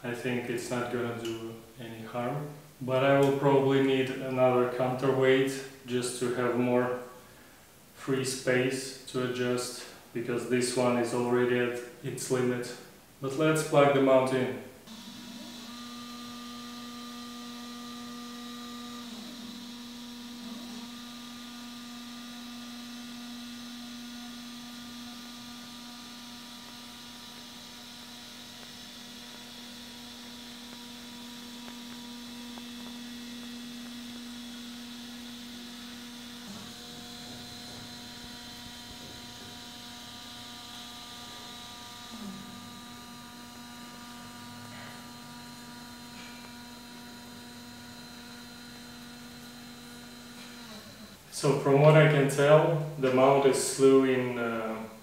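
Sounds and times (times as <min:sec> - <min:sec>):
telescope mount motors whining: 0:14.9 - 0:52.4.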